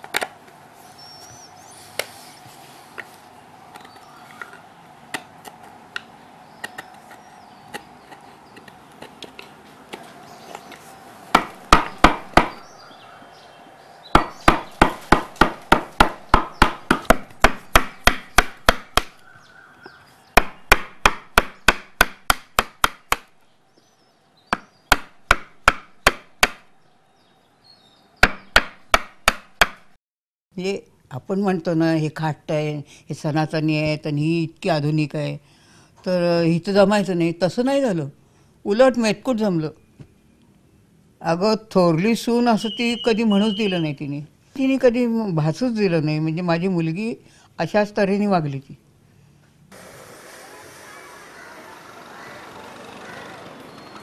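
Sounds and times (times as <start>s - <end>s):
chopping strokes on wood: 11.3s - 12.6s, 14.2s - 19.2s, 20.4s - 23.3s, 24.5s - 26.7s.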